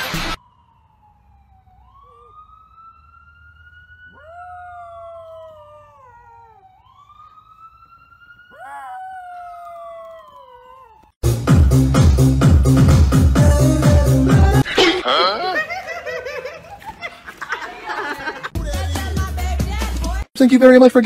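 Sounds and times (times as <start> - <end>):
siren wailing: 0.3 - 11.2
dog howling: 4.1 - 6.8, 8.5 - 11.2.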